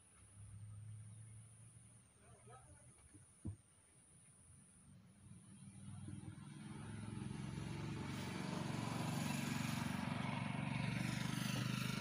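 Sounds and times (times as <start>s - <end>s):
vehicle engine passing by: 4.8s - 12.0s.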